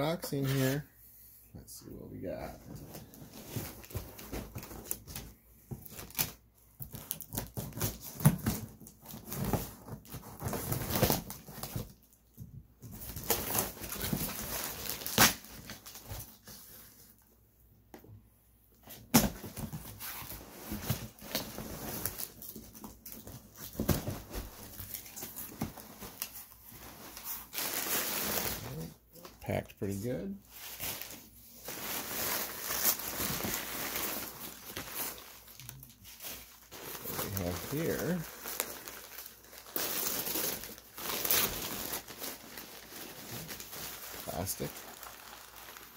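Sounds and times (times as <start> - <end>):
packing tape ripping: 13.2 - 16.0
paper rustling and crinkling: 30.5 - 45.9.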